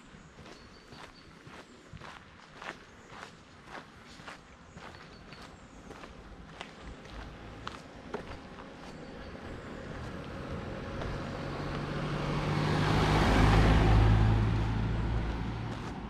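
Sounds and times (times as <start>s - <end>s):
car passing by: 8.5s - 16.0s.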